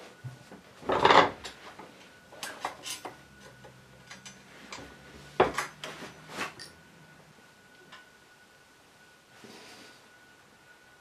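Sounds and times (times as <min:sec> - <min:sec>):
metal rack clicks and clinks: 0:02.4 - 0:03.2.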